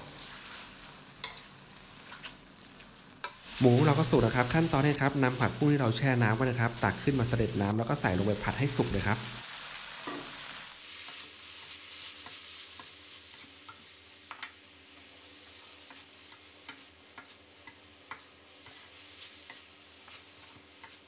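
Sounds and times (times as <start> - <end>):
food sizzling in a wok: 0.0 - 21.0
metal spatula scraping pan: 15.8 - 21.0.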